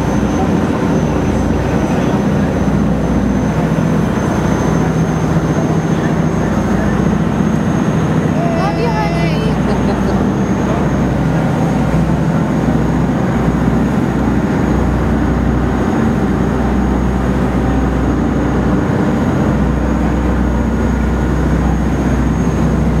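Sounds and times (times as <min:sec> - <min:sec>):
boat engines droning: 0:00.0 - 0:23.0
water rushing past hull: 0:00.0 - 0:23.0.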